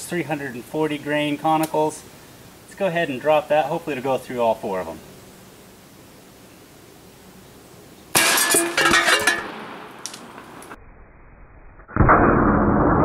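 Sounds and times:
metallic clanging of skillets: 8.2s - 9.6s.

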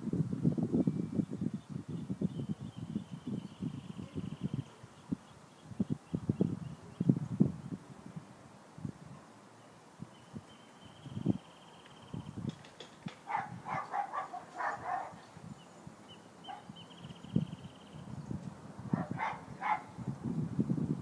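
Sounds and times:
dog barking: 13.3s - 15.2s, 16.5s - 16.7s, 18.9s - 19.9s.

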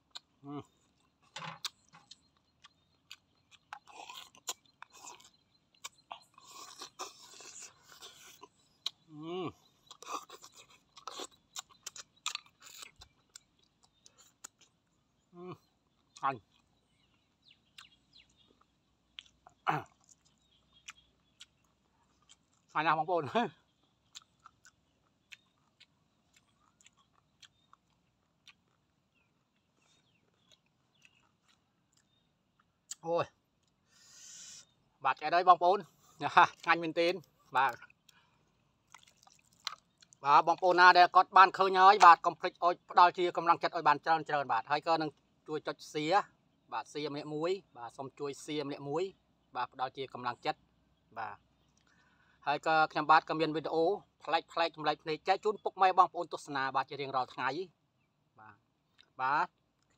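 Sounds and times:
mouth clicks and smacks chewing: 0.0s - 22.8s, 23.5s - 35.3s, 36.0s - 40.7s, 51.6s - 52.1s, 58.8s - 59.9s
person slurping and chewing: 6.3s - 8.5s.

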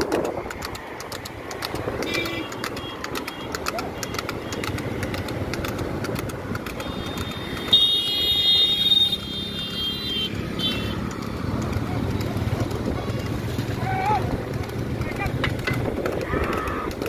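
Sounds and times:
wind noise: 0.0s - 3.1s, 15.2s - 17.0s
road noise: 0.0s - 17.0s.

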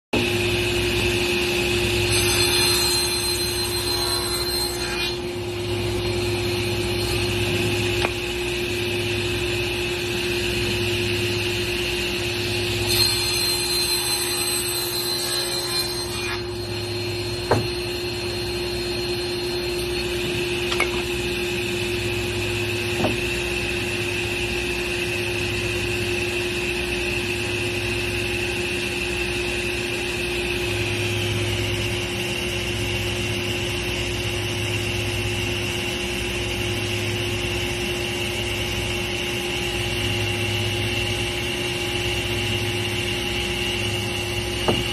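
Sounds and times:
saw cutting through wood: 0.2s - 21.2s
table saw whining: 0.2s - 44.9s.

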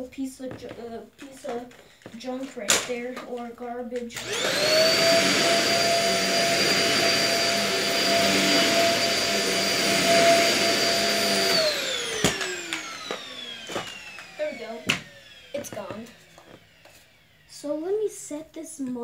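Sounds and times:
vacuum cleaner motor whine: 4.2s - 17.9s.

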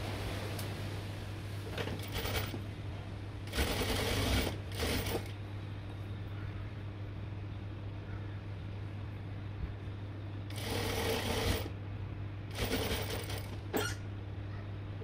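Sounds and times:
steady low hum: 0.0s - 15.0s
sewing machine stitching: 2.0s - 2.6s, 3.5s - 5.3s, 10.5s - 11.7s, 12.5s - 13.9s.

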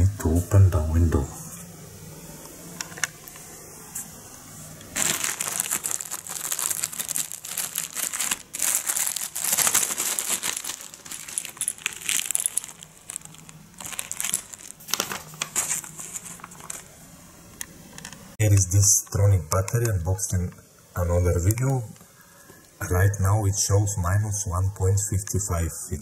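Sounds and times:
plastic bag crinkling: 4.9s - 16.9s.

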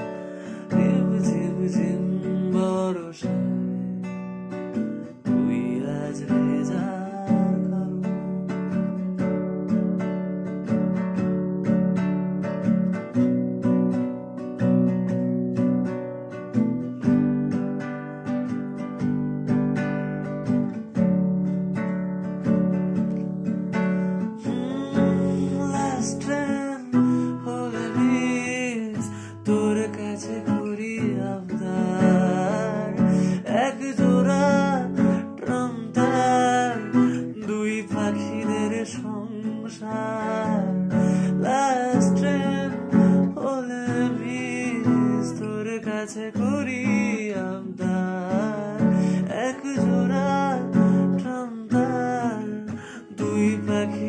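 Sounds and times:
man singing: 0.0s - 4.1s, 5.1s - 8.7s, 24.1s - 54.0s
acoustic guitar strumming: 0.0s - 54.0s.

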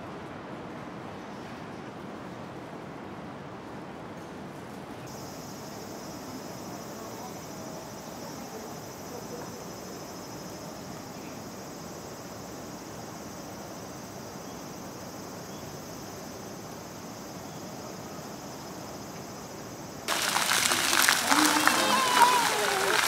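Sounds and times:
crickets trilling: 5.1s - 23.0s
fountain jets splashing into pool: 20.1s - 23.0s.

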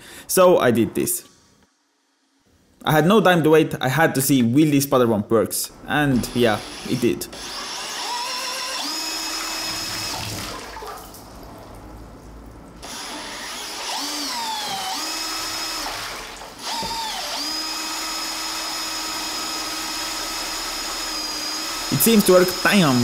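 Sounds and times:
power drill motor whine: 6.2s - 10.4s, 12.8s - 23.0s.

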